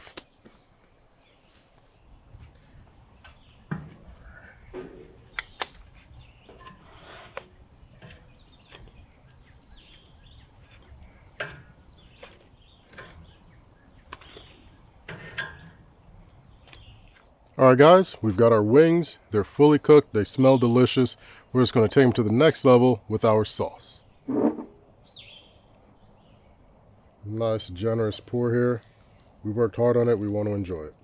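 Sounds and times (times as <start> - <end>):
metal tongs scraping grill grate: 3.2 - 16.8.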